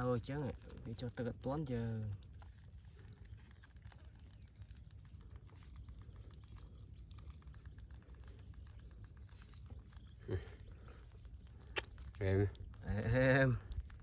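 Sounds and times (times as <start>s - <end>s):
small irregular clicks and crackles: 0.0s - 14.0s.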